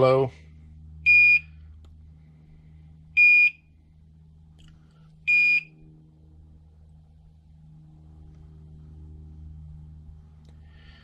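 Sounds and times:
carbon monoxide alarm beeps: 1.0 - 1.6, 3.2 - 3.7, 5.3 - 5.8.

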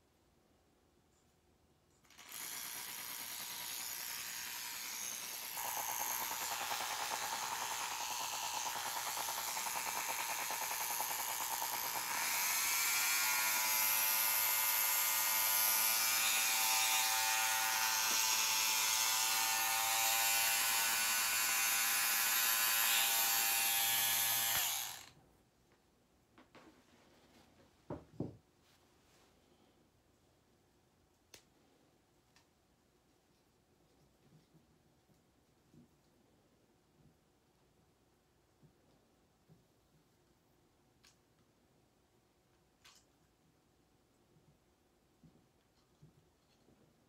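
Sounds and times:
electric razor buzzing: 2.2 - 25.1.

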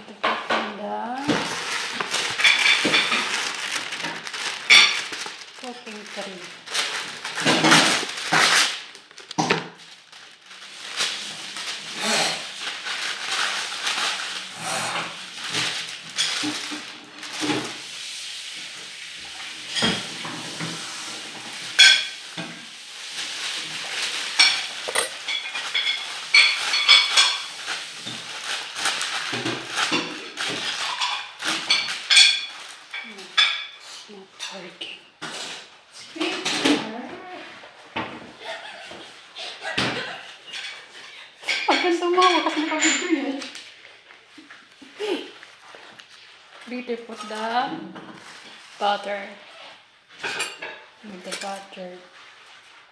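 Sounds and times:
baking paper tearing and crinkling: 0.7 - 52.9
dishes clinking: 24.4 - 27.5.

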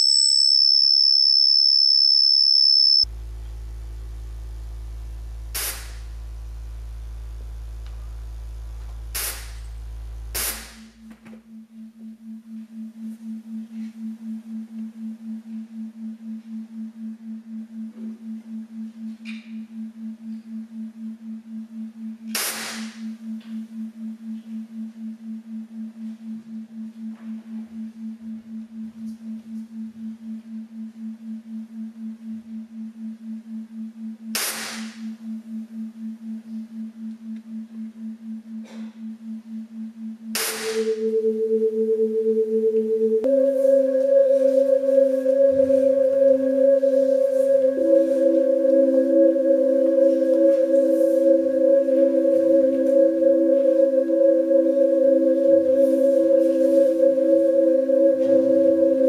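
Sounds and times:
high steady electronic tone: 0.0 - 9.3, 35.5 - 59.0
deep low drone: 3.0 - 18.2, 40.6 - 59.0
pulsing low hum: 3.0 - 22.2, 35.2 - 59.0
sharp hissing hits: 5.5 - 6.0, 9.2 - 9.6.

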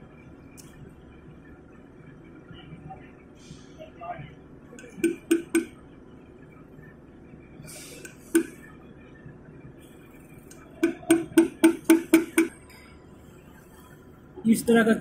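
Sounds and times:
hammer tapping metal punch: 4.8 - 5.7, 10.8 - 12.6.

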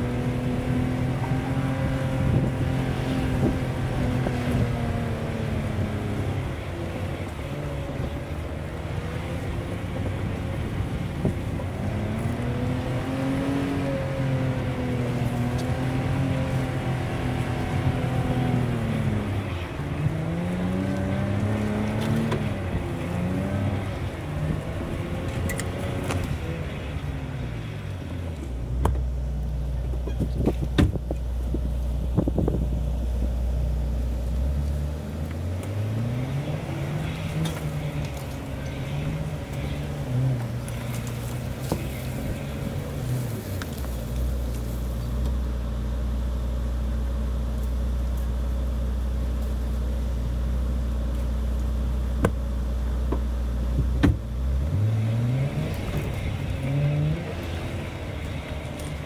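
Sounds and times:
short knocks and clunks: 29.9 - 31.2, 53.1 - 54.3.

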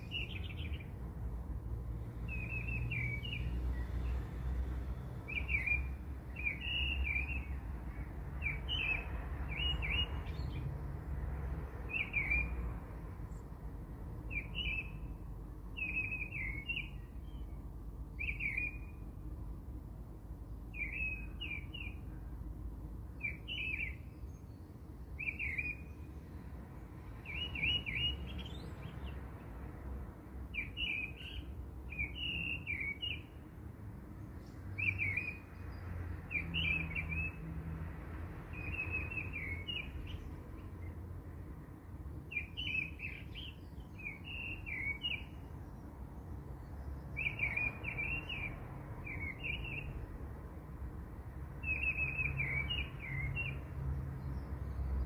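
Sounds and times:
small bird chirping: 0.0 - 1.0, 5.3 - 10.6.

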